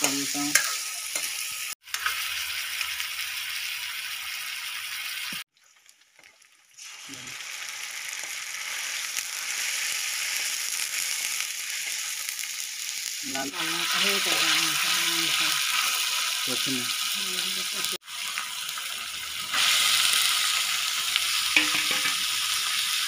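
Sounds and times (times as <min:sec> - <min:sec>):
onions sizzling in oil: 0:00.0 - 0:23.0.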